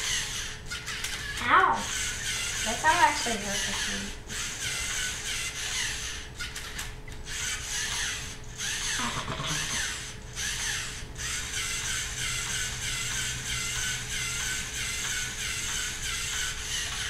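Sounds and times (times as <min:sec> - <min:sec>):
plastic gears clattering: 0:00.0 - 0:04.0
servo motors whirring: 0:00.0 - 0:17.0.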